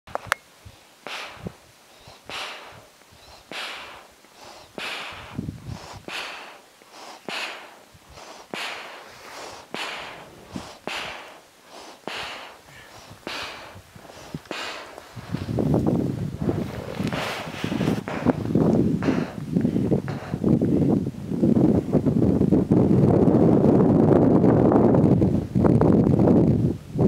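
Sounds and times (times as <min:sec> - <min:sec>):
person breathing hard: 0:00.7 - 0:15.7, 0:16.4 - 0:20.6.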